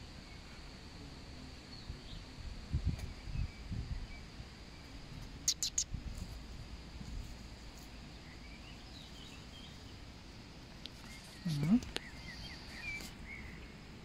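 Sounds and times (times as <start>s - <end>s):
faint steady high hiss: 0.0s - 14.0s
faint bird chirps: 1.7s - 6.0s, 10.8s - 13.8s
sharp high clicks: 5.5s - 5.9s.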